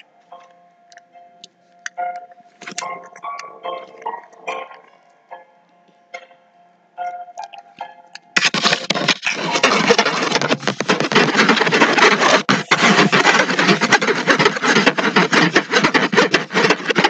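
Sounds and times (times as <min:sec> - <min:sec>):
loud scraping with crackles: 0:08.4 - 0:17.0.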